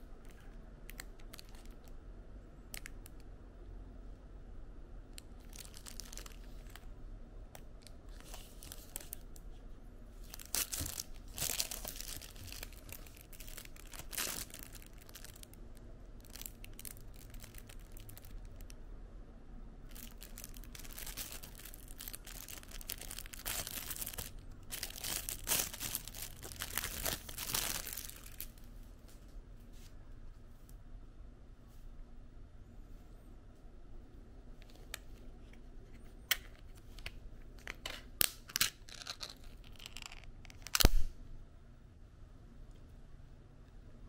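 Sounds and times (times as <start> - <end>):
plastic wrapper crinkling: 0.3 - 2.0, 5.2 - 6.9, 7.6 - 9.5, 10.2 - 18.8, 19.9 - 28.7, 36.3 - 41.0.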